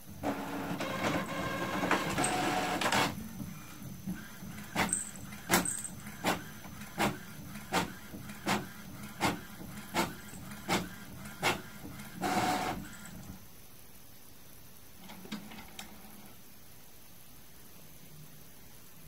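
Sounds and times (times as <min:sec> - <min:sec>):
inkjet printer printing: 0:00.0 - 0:13.4
mechanical whirr of page feeding: 0:00.2 - 0:13.4.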